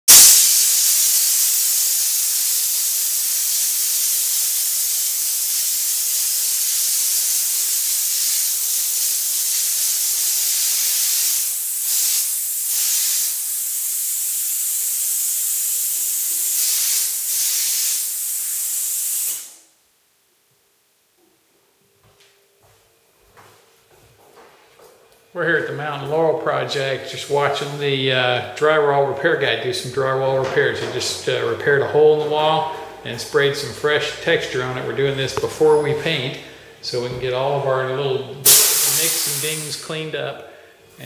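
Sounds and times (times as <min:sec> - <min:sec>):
hopper gun spraying air hiss: 0:00.1 - 0:19.6, 0:38.4 - 0:39.8.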